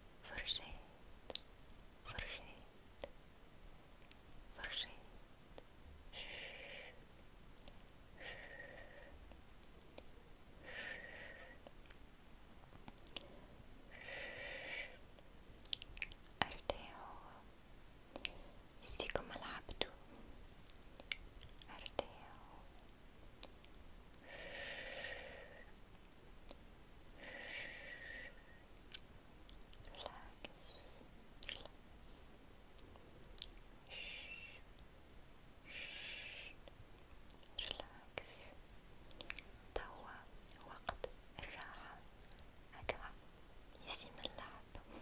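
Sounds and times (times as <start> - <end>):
soft breath blowing with whistle: 8.2 - 9.2, 13.9 - 15.0, 24.2 - 25.8, 27.2 - 28.7, 35.6 - 36.6
faint clicks: 39.1 - 43.0.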